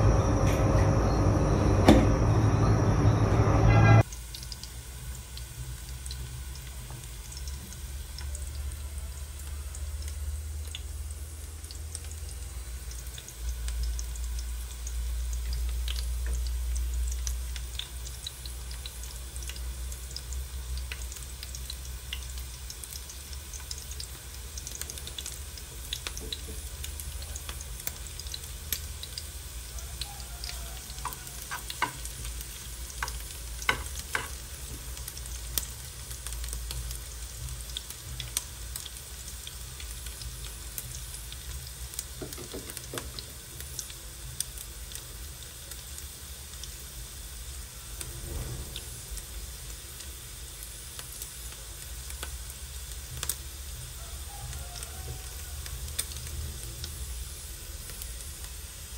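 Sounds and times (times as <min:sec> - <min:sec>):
onions sizzling in hot oil: 0:04.0 - 0:58.9
spoon stirring and clicking on a pan: 0:30.4 - 0:34.4.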